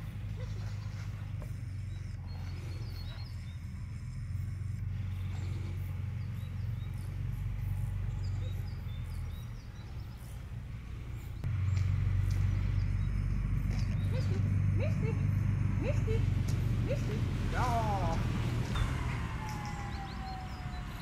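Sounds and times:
small birds chirping: 0.0s - 18.8s
low rumble: 0.0s - 21.0s.

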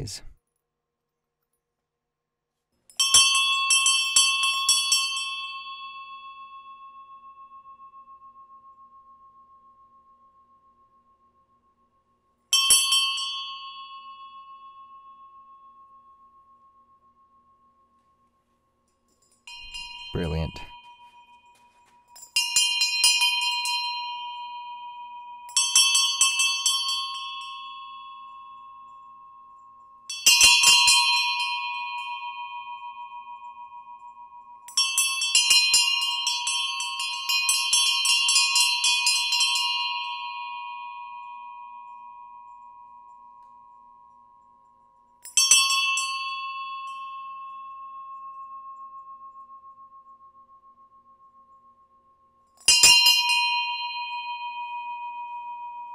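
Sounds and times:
small bronze bells striking: 2.9s - 11.1s, 12.5s - 18.0s, 18.9s - 55.9s.

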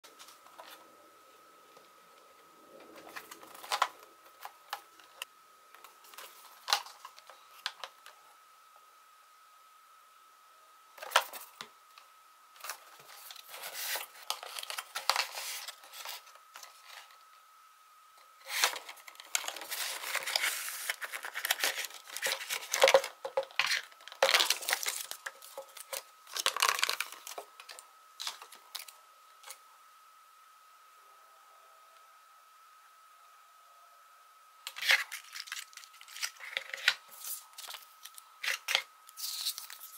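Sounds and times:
faint high whine: 0.0s - 39.9s
cardboard and paper rustling: 2.8s - 5.2s, 11.0s - 11.6s, 12.6s - 17.2s, 18.4s - 29.6s, 34.7s - 39.9s.

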